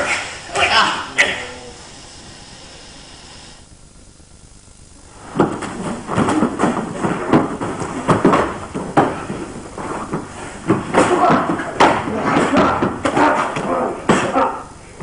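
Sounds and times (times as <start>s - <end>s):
feet shuffling on a mat: 5.1s - 13.7s
hands and bodies slapping: 5.3s - 14.6s.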